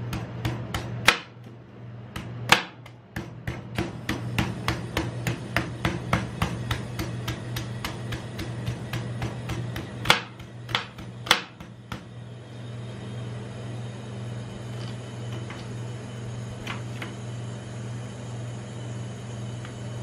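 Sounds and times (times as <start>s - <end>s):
knife chopping coconut husk: 0.0s - 12.2s
steady low hum: 0.0s - 20.0s.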